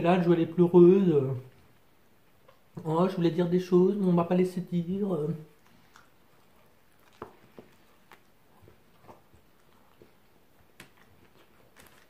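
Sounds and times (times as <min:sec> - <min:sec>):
man chewing a sandwich: 0:05.6 - 0:12.0.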